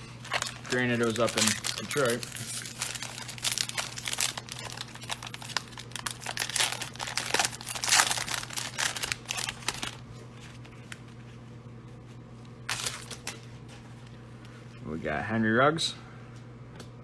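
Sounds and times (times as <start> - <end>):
plastic wrapper tearing and crinkling: 0.2 - 10.0, 12.7 - 13.4.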